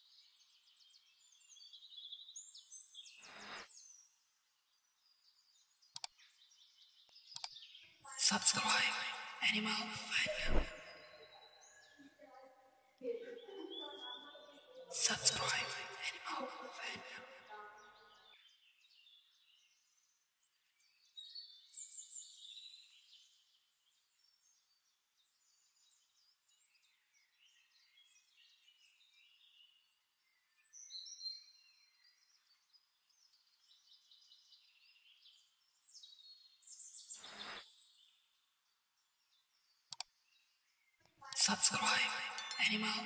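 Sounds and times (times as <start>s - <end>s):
faint bird chirps: 0.0s - 43.0s.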